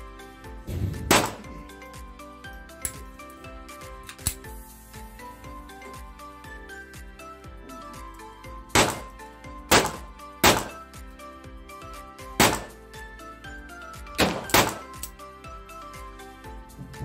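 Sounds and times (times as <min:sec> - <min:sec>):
background music: 0:00.0 - 0:17.0
pistol shots: 0:01.1 - 0:01.6, 0:08.8 - 0:09.1, 0:09.7 - 0:10.8, 0:12.4 - 0:12.8, 0:14.2 - 0:15.0.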